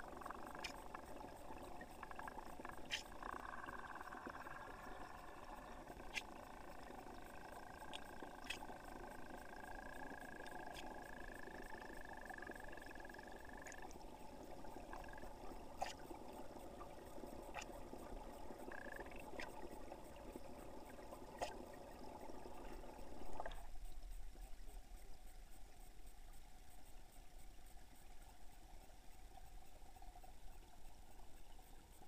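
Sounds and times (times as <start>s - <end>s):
muffled underwater stream rush: 0.0s - 32.0s.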